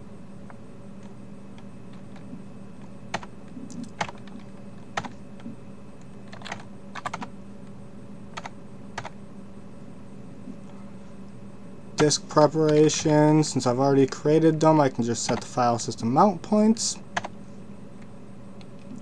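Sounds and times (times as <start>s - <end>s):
faint steady hum: 0.0s - 19.0s
keyboard keys clicking: 3.1s - 5.5s, 6.2s - 7.3s.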